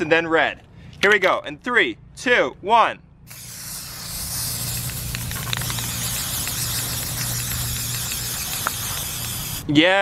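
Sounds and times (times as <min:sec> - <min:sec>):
spray can hissing: 0:03.3 - 0:09.7.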